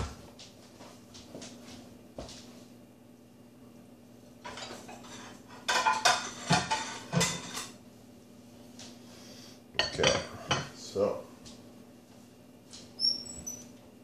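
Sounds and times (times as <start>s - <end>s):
faint steady hum: 0.0s - 14.0s
pot and utensils clanking: 4.5s - 7.8s, 9.8s - 10.8s.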